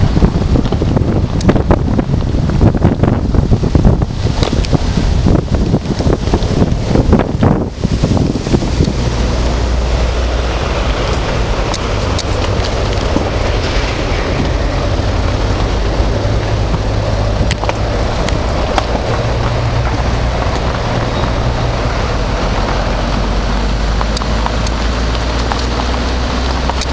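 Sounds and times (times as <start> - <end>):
tyres rumbling on gravel: 0.0 - 26.9
sharp ticks: 11.1 - 13.3.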